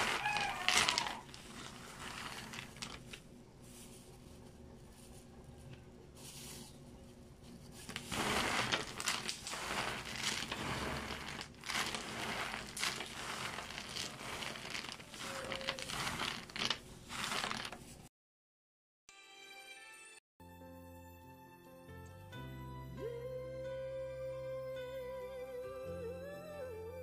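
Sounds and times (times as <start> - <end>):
plastic gloves crinkling: 0.0 - 5.3, 6.1 - 18.1
cookies rustling: 0.0 - 5.4, 6.1 - 18.1
soft background music: 19.2 - 27.0.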